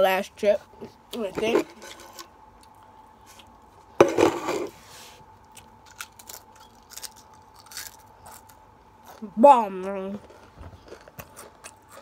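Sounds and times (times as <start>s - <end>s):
chewing with small crackles: 5.4s - 12.0s
crisp crunch bite: 5.5s - 9.2s.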